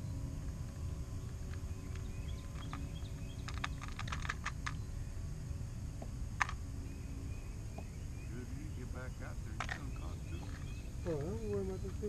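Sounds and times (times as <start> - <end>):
steady low rumble: 0.0 - 12.0
fishing tackle rattling in plastic box: 3.4 - 4.6.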